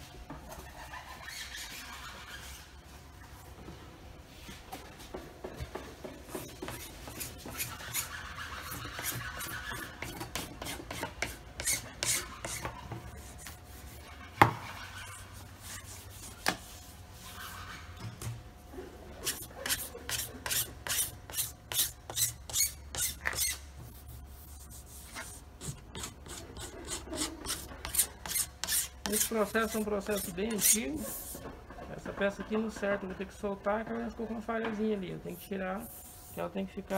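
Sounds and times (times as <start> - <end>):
hand file rasping: 6.6 - 13.5, 19.2 - 23.6, 25.6 - 31.4.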